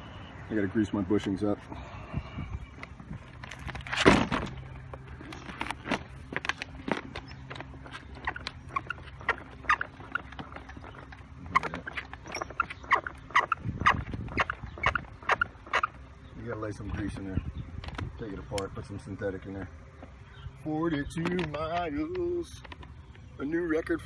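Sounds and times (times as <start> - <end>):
skateboard bushings squeaking: 2.7 - 16.0, 20.9 - 23.2
thump: 4.0 - 4.5.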